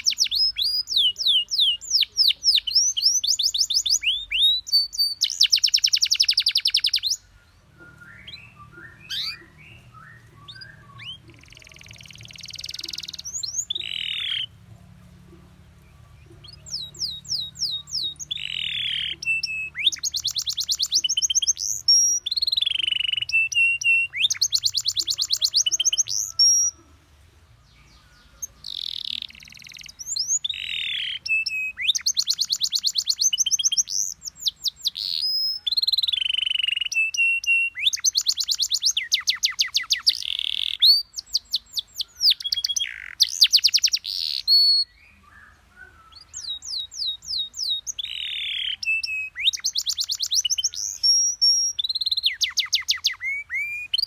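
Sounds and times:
canary singing: 0:00.0 - 0:54.0.

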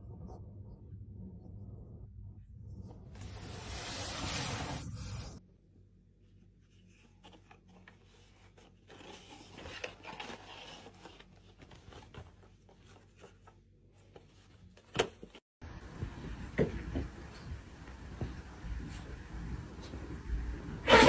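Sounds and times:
cardboard box rubbing on carpet: 0:03.2 - 0:05.4.

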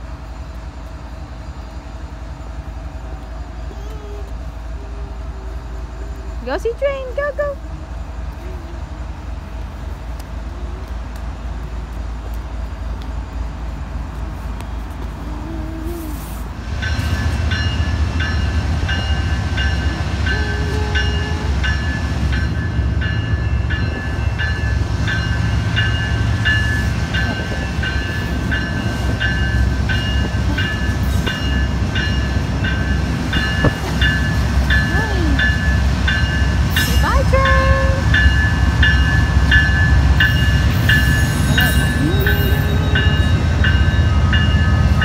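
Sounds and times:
diesel locomotive rumble: 0:00.0 - 0:45.0
railroad crossing bell ringing: 0:16.7 - 0:45.0.

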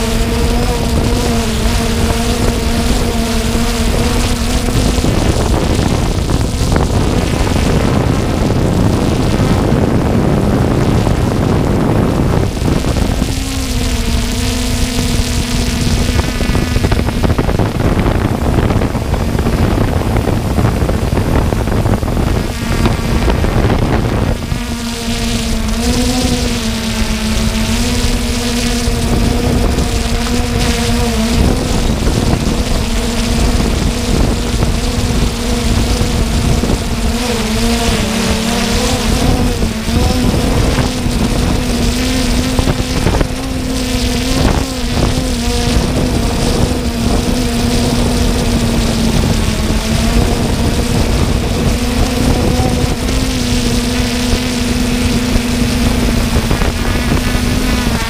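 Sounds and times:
drone propellers humming: 0:00.0 - 0:58.0
wind rushing over microphone: 0:00.0 - 0:58.0.

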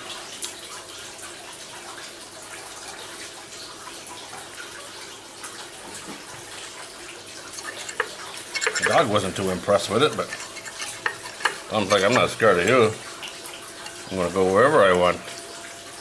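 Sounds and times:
fork clicking on ceramic plate: 0:07.6 - 0:09.1, 0:10.1 - 0:14.0.

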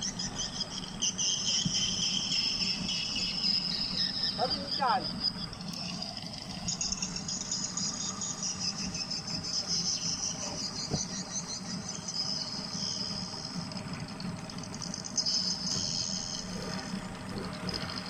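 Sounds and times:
insects buzzing: 0:00.0 - 0:18.0.

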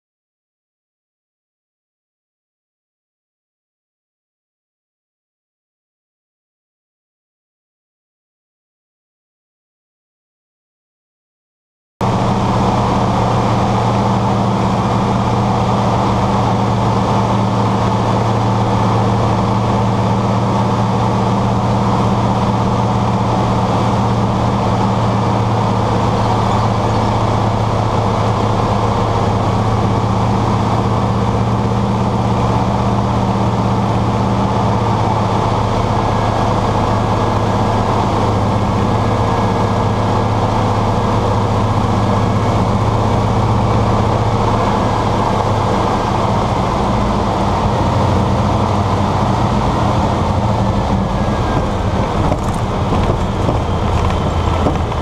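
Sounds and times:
propeller plane engine droning: 0:12.0 - 0:55.0.

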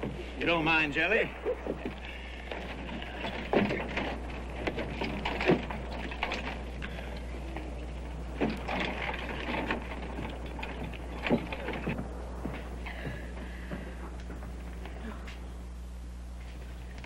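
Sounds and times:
wooden benches knocking and scraping: 0:00.0 - 0:00.3, 0:01.6 - 0:06.7, 0:08.3 - 0:14.9.

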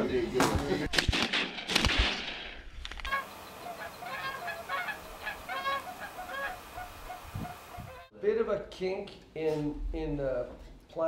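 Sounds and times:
geese honking: 0:03.1 - 0:08.1.

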